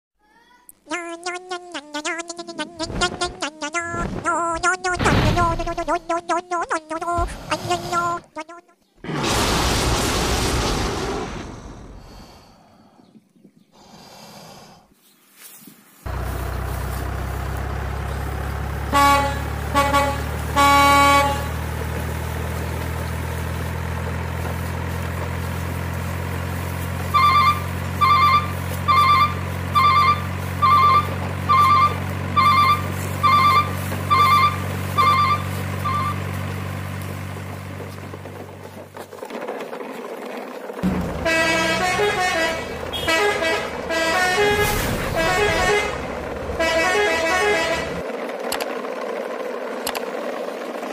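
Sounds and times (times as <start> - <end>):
truck horn toots: 7.5 - 8.7, 18.8 - 21.8, 27.1 - 36.5, 40.8 - 48.0
low truck engine drone: 16.1 - 39.2, 40.7 - 50.9
reversing beeps: 27.2 - 36.2.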